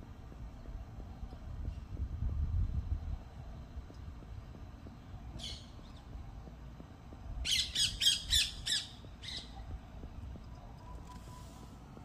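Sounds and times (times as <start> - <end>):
loud high-pitched calls: 7.4 - 9.6.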